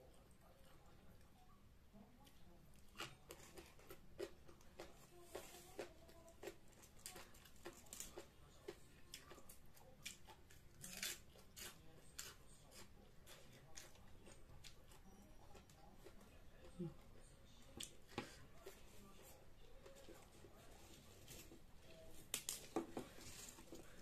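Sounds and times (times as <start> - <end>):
person chewing and crunching food: 2.2 - 24.0
food tearing clicks and crackles: 22.2 - 24.0.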